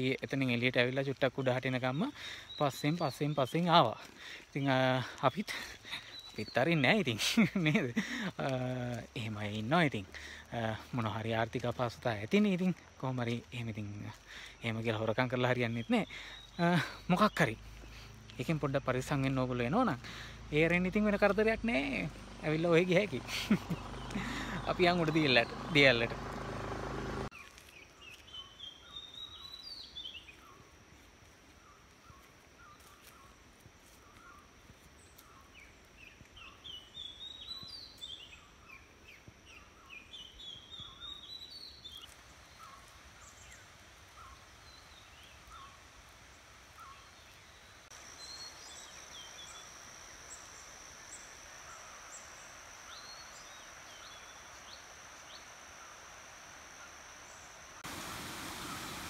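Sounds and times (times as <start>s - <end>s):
birds calling: 0.0s - 30.6s, 34.0s - 59.0s
thin steady high tone: 47.9s - 59.0s.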